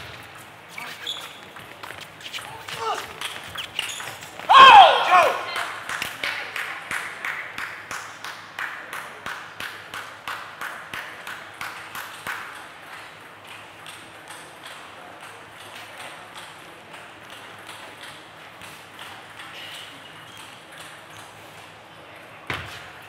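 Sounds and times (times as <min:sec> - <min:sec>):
table tennis ball clicking: 0:09.2 - 0:19.5.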